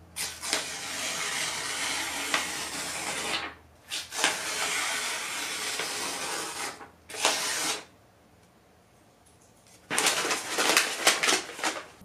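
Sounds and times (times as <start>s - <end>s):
paper being crumpled: 9.7s - 12.0s.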